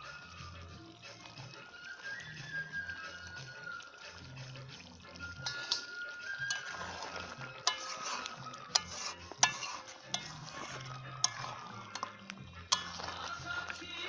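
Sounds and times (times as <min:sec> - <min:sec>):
curry sizzling: 0:00.0 - 0:14.0
spatula stirring in metal pan: 0:00.1 - 0:14.0
spatula clinking against pan: 0:05.4 - 0:13.8.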